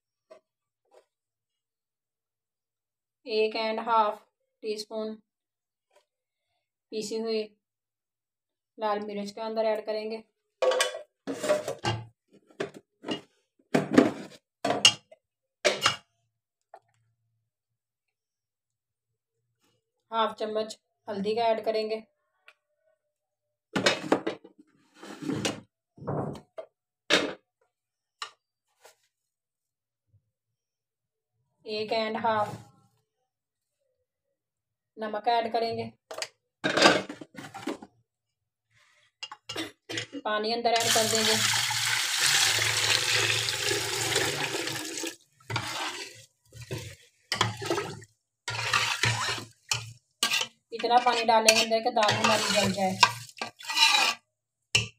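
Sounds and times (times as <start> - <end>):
kitchen utensils clattering: 10.6 - 12.0, 45.5 - 54.2
water pouring into a pot: 40.8 - 50.0, 52.2 - 53.8
spoon stirring water: 40.8 - 54.2.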